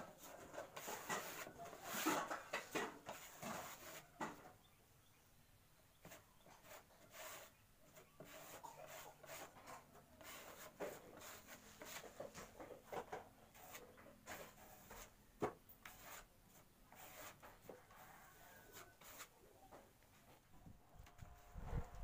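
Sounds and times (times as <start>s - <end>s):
rag rubbing on wood: 6.6s - 9.6s.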